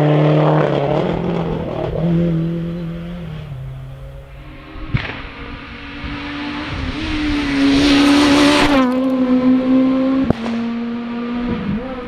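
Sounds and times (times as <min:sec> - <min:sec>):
rally car engine passing: 0:00.0 - 0:12.0
sharp crack: 0:04.9 - 0:05.4.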